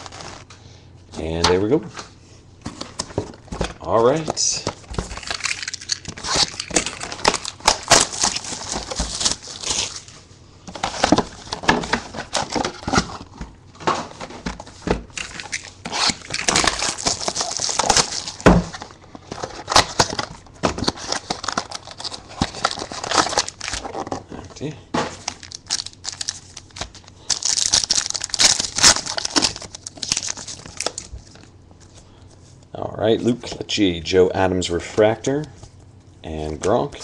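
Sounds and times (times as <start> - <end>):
plastic wrapping crinkling and tearing: 0.0 - 0.5, 4.1 - 13.4, 14.1 - 31.5.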